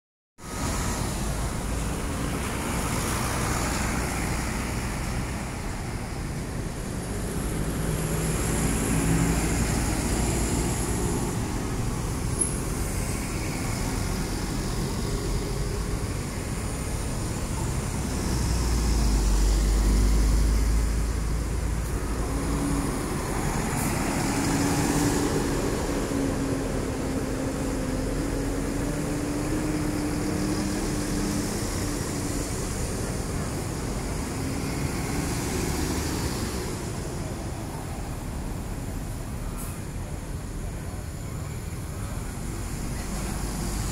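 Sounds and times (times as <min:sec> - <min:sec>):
coach engines droning: 0:00.4 - 0:43.9
road and traffic noise: 0:00.4 - 0:43.9.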